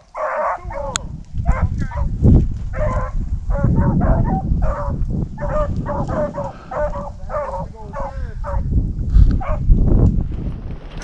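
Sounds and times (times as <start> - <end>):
hounds baying: 0.0 - 2.1, 2.7 - 8.7, 9.4 - 9.7.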